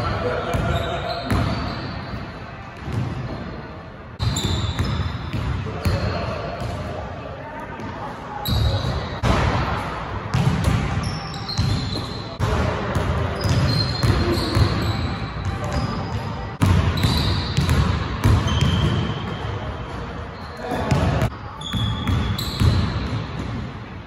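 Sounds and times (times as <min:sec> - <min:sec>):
sneaker squeaks: 0:00.4 - 0:03.5, 0:04.2 - 0:06.7, 0:08.4 - 0:09.2, 0:10.3 - 0:12.4, 0:13.3 - 0:23.5.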